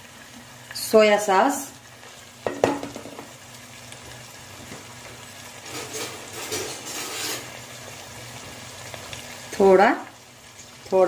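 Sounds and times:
vegetables frying in a pot: 0.0s - 11.0s
wooden spatula scraping: 5.6s - 7.6s.

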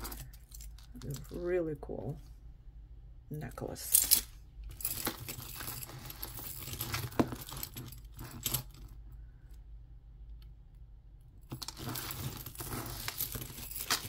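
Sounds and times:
metal jewelry jingling and clinking: 0.0s - 1.4s, 3.9s - 9.0s, 11.5s - 14.0s.

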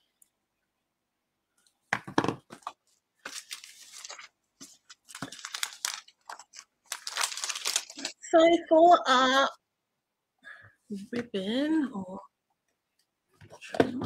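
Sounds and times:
plastic sleeve crinkling: 3.2s - 8.3s.

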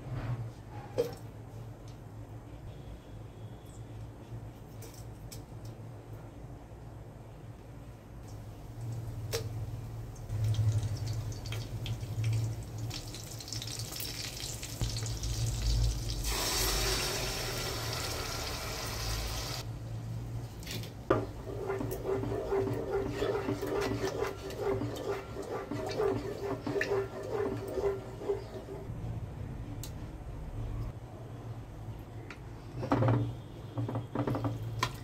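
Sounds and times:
yogurt sizzling in hot oil: 10.3s - 19.7s.

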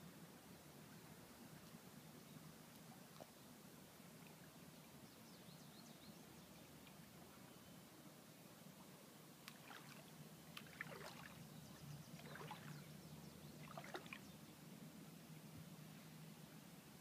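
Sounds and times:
low steady hum: 0.0s - 17.0s
water lapping at shore: 8.6s - 14.5s.

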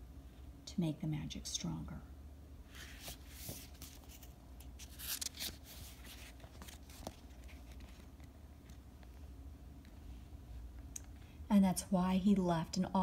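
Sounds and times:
book page turning: 2.7s - 9.1s.

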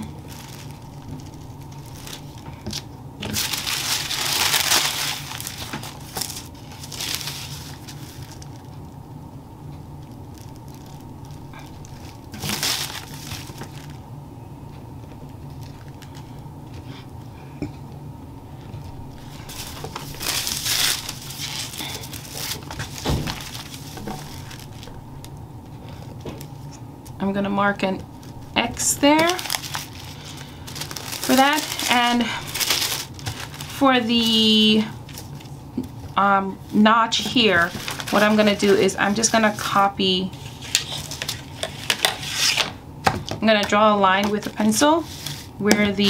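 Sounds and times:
tissue paper rustling: 0.0s - 8.7s, 10.2s - 14.0s, 19.2s - 25.0s, 29.0s - 35.6s, 37.1s - 42.6s, 44.8s - 45.6s
low room hum: 0.0s - 46.0s.

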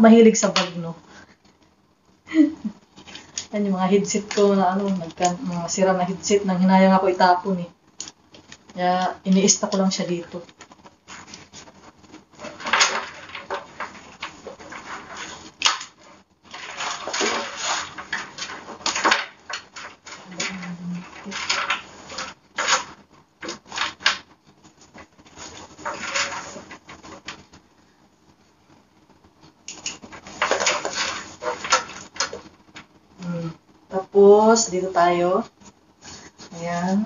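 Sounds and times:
bags rustling: 10.6s - 27.6s, 30.0s - 32.9s.

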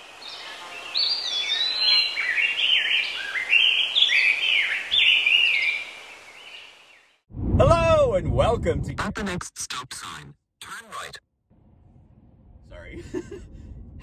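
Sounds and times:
faint forest ambience hiss: 0.0s - 7.2s
songbirds chirping and singing: 0.1s - 7.2s.

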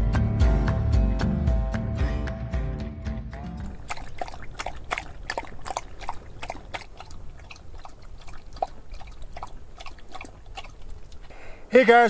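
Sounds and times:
dog lapping water: 3.6s - 11.7s.

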